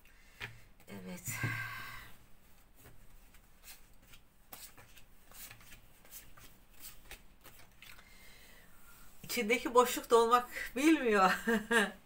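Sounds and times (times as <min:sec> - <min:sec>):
cards shuffled on cloth: 0:02.8 - 0:08.0.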